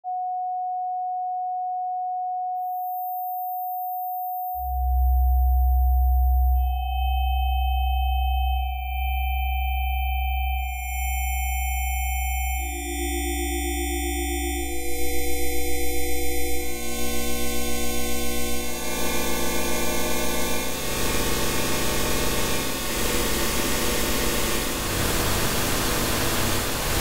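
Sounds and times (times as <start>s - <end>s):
sine wave tones: 0.0s - 27.0s
loud low hum: 14.6s - 27.0s.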